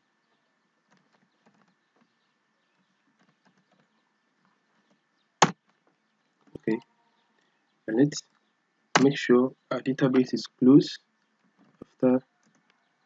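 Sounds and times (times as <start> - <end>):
keyboard typing: 9.0 - 9.2.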